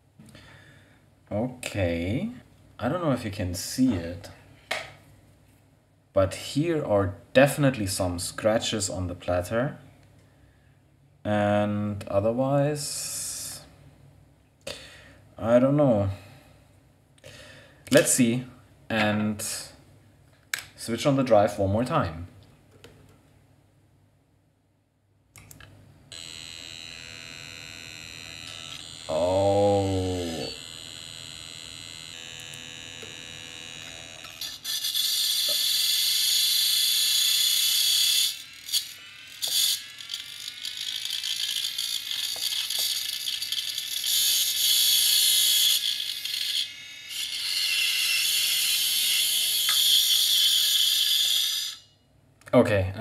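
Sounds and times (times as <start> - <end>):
hard drive motor whine: 26.1 - 44.7.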